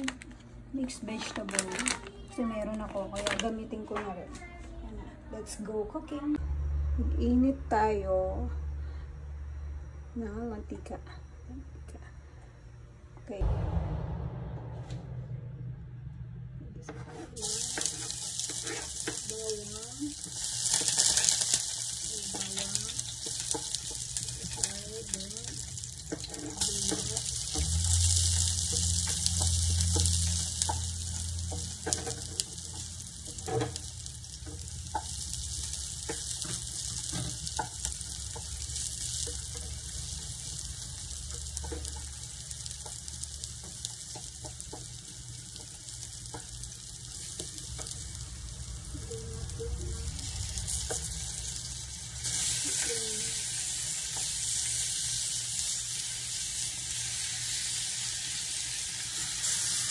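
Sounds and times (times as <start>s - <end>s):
food sizzling in a frying pan: 17.3s - 59.9s.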